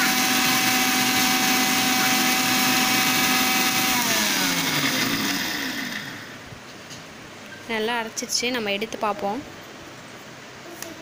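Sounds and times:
mixer grinder motor whining: 0.0s - 6.4s.

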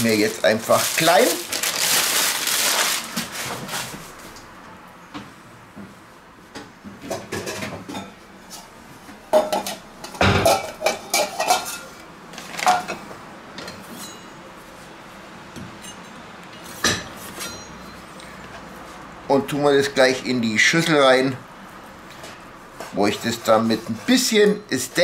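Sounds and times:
metal bowls clattering: 9.4s - 12.0s.

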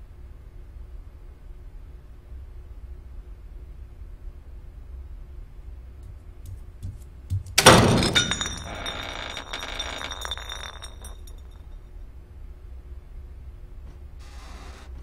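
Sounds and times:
bottle clattering on hard floor: 6.5s - 11.6s.

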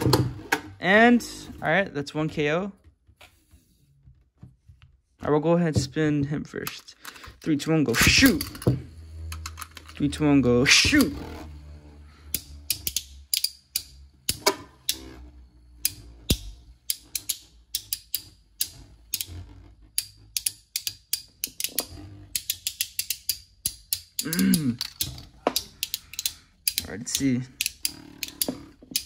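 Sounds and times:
spinning tops grinding whir: 6.7s - 29.0s.

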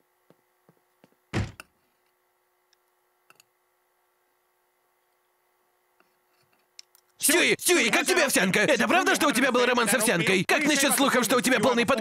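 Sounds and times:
faint steady hum: 0.0s - 12.0s
dull thump: 1.3s - 1.6s.

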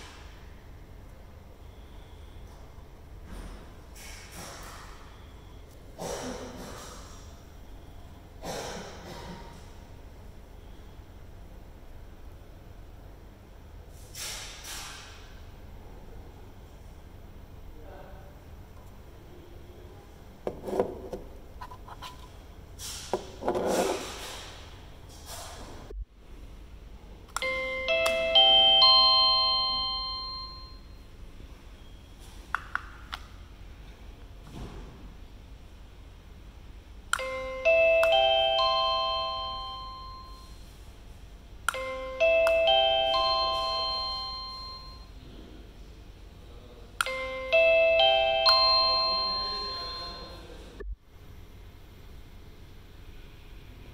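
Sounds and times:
doorbell chime melody: 27.4s - 30.8s, 37.2s - 40.5s, 41.7s - 45.1s, 47.0s - 50.4s.

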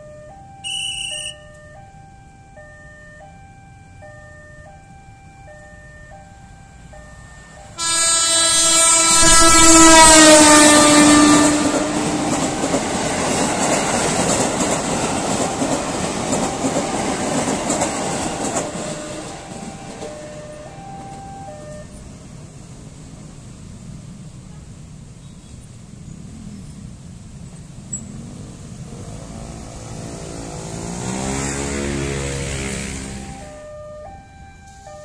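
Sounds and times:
train horn blast: 0.6s - 1.4s, 7.8s - 12.6s
train running noise: 6.3s - 34.9s.

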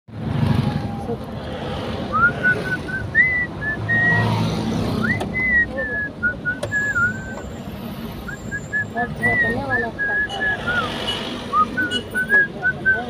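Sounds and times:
car rumble in traffic: 0.1s - 13.0s
person whistling a tune: 2.1s - 4.2s, 5.0s - 7.4s, 8.3s - 10.9s, 11.5s - 13.0s.

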